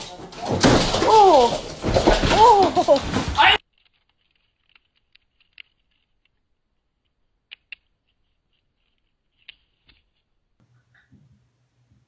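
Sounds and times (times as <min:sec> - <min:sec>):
claws clicking on wooden pole: 0:03.6 - 0:10.3.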